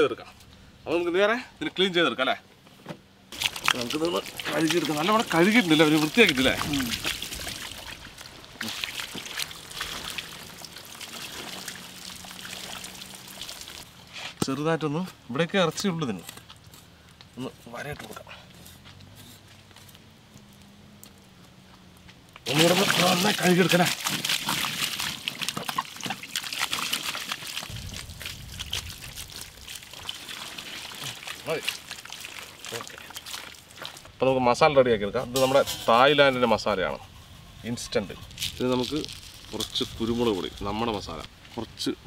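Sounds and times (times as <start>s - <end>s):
water splashing and trickling: 3.3s - 13.9s, 22.4s - 34.2s, 37.7s - 42.0s
low rumble: 27.7s - 30.0s.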